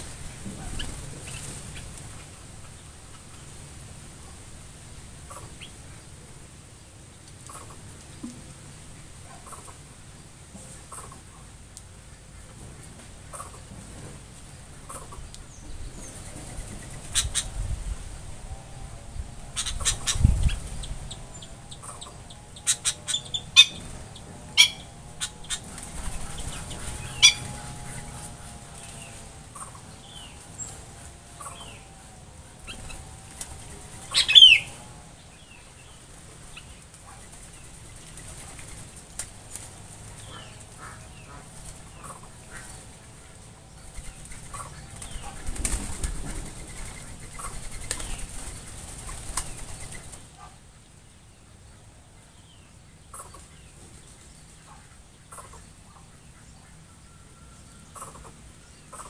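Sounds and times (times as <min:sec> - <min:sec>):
bird wings flapping: 0:23.6 - 0:29.4, 0:32.6 - 0:34.8, 0:36.1 - 0:43.1, 0:43.8 - 0:50.3.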